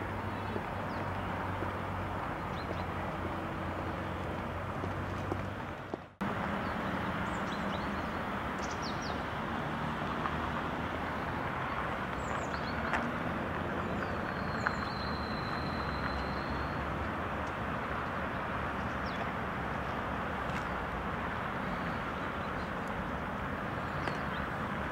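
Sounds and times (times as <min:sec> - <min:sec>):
town hiss and rumble: 0:00.0 - 0:24.9.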